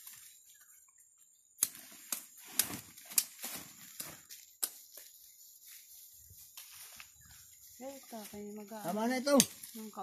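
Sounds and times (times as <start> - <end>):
machete chopping stalks: 1.6 - 4.8.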